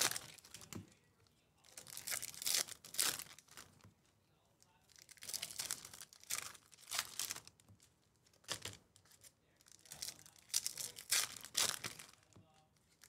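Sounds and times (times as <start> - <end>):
foil wrapper tearing and crinkling: 0.0 - 0.7, 1.7 - 3.6, 5.0 - 7.5, 8.4 - 12.3.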